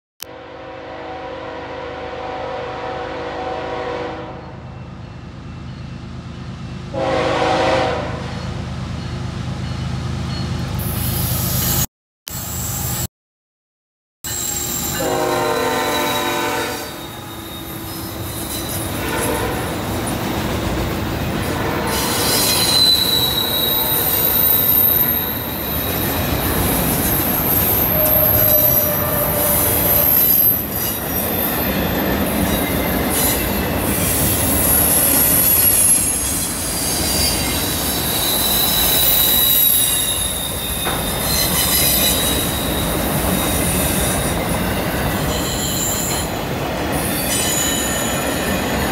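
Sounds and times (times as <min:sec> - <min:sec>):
locomotive horn: 0:00.3 - 0:04.6, 0:06.9 - 0:08.4, 0:14.9 - 0:17.4, 0:18.9 - 0:19.9, 0:21.4 - 0:23.7
freight train rumble and clatter: 0:02.9 - 0:11.9, 0:14.7 - 0:48.9
train wheels squealing on rail: 0:08.3 - 0:13.1, 0:14.3 - 0:20.4, 0:21.8 - 0:48.9.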